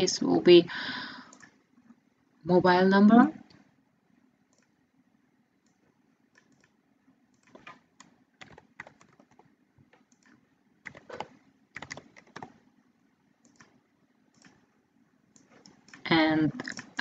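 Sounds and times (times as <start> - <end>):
typing on computer keyboard: 5.7 - 6.8, 7.4 - 12.6, 13.4 - 14.7, 15.4 - 17.0.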